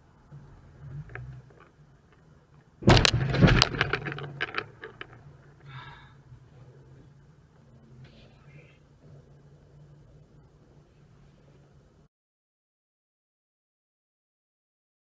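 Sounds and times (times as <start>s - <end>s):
car collision bang: 2.8s - 4.4s
cracking and crunching: 2.8s - 5.2s.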